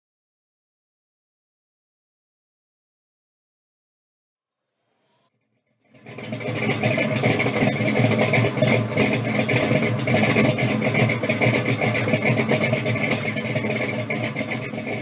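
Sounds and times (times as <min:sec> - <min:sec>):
car engine idling: 0:05.8 - 0:15.0.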